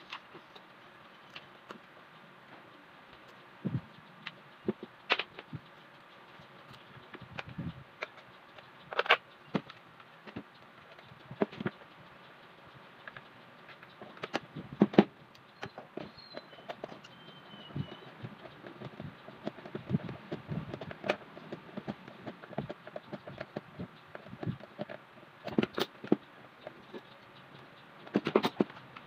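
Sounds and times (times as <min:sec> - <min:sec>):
plastic fan housing clicking: 0:04.0 - 0:11.8, 0:13.0 - 0:27.1, 0:28.0 - 0:29.0.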